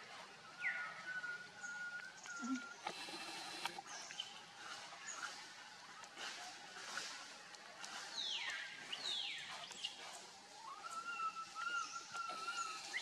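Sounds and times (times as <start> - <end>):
long wavering whistle-like call: 10.6 - 13.0.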